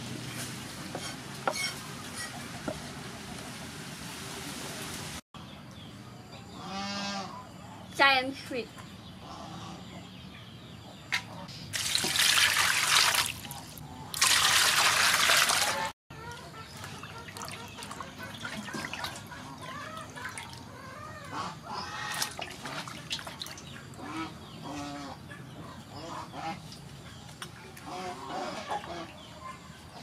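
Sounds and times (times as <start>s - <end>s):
water gushing into metal basin: 11.7s - 13.5s, 14.1s - 15.9s
water splashing and dripping: 11.7s - 15.9s, 16.7s - 20.8s, 22.0s - 24.0s.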